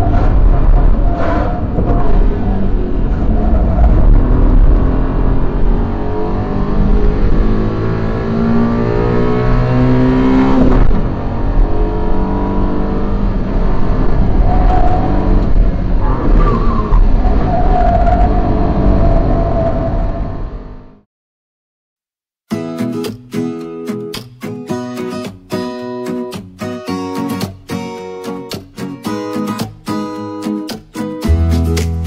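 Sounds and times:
truck engine accelerating: 0.0 - 21.0
road and tyre rumble: 0.0 - 21.1.

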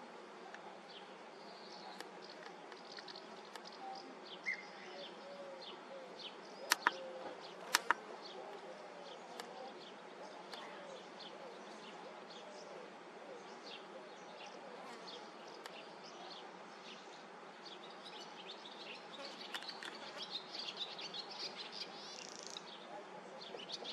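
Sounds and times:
sharp clicks: 6.7 - 7.0, 7.6 - 8.0, 19.4 - 20.0.

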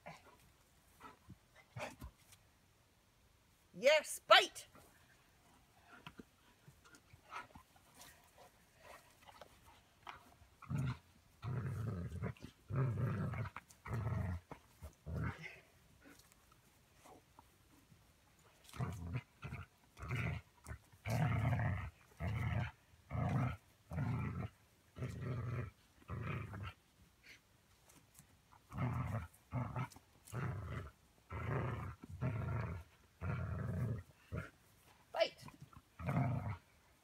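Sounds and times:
dog play-growling: 5.9 - 16.4, 18.4 - 26.8, 28.6 - 36.8.

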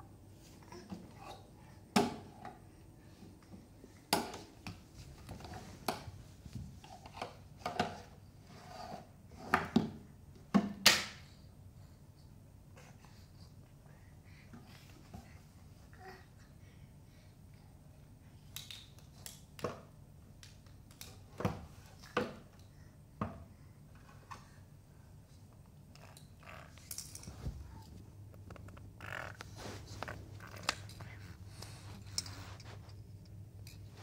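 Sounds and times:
low steady hum: 20.0 - 34.0.

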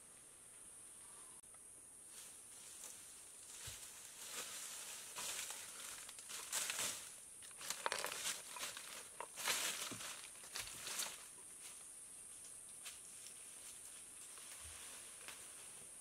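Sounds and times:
footsteps through dry leaves: 2.1 - 11.3
twigs snapping: 5.2 - 11.2.

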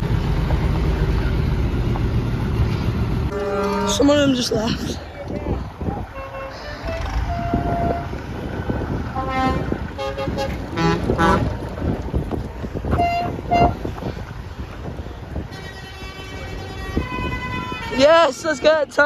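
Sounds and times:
engines driving past: 0.0 - 15.8
vehicle horns sounding: 3.3 - 4.4, 6.1 - 8.2, 9.1 - 11.6, 12.8 - 14.0, 15.4 - 18.8.

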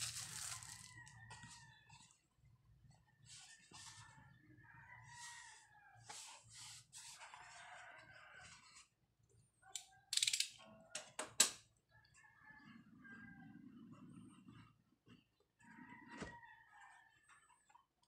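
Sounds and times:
hands handling cardboard box: 0.0 - 1.1
distant rooster crowing: 0.1 - 2.2, 3.2 - 6.4, 12.0 - 14.1, 15.6 - 17.3
scraping and rubbing on cardboard: 5.2 - 8.9.

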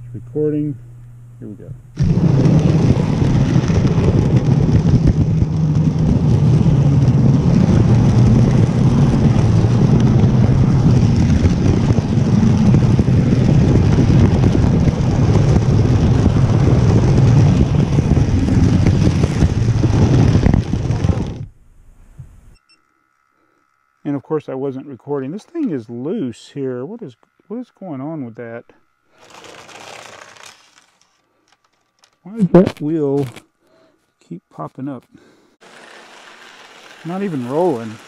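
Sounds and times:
model train rolling on track: 35.6 - 38.0.

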